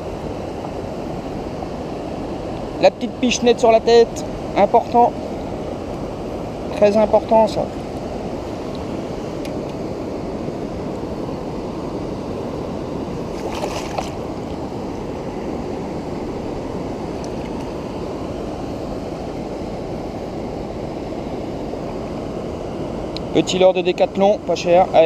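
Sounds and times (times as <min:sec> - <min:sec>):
river rushing over stones: 0:12.6 - 0:19.3
water splashing: 0:13.3 - 0:14.5.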